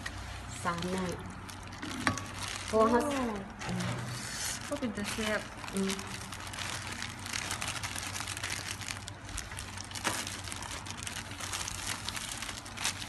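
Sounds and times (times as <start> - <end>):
plastic glove crinkling: 0.0 - 13.0.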